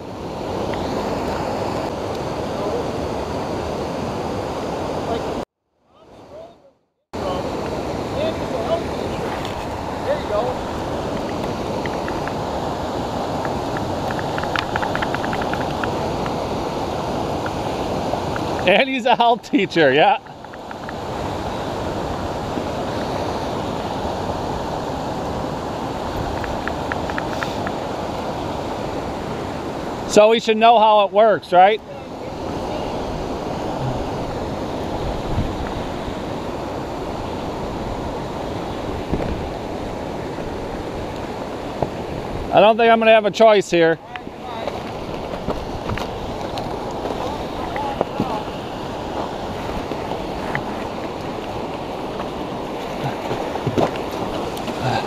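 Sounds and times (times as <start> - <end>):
rushing river water: 0.0 - 5.4, 7.2 - 55.0
wind on microphone: 7.2 - 18.7, 20.2 - 30.1, 31.9 - 42.5.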